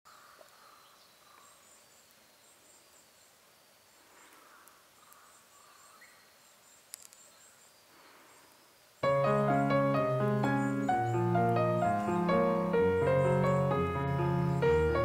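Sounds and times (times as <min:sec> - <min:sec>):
small click: 0:06.9 - 0:07.2.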